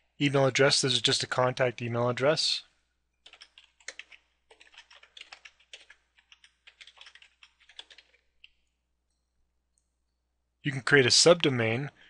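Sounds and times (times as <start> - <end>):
computer keyboard typing: 3.2 - 8.6.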